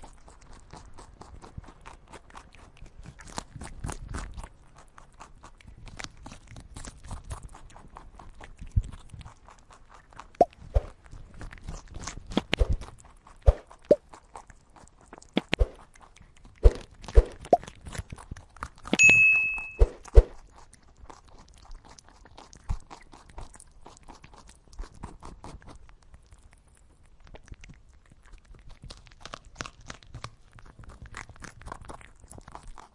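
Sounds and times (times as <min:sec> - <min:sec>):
rabbit chewing grass: 0:00.0 - 0:32.9
high steady tone: 0:19.0 - 0:19.9.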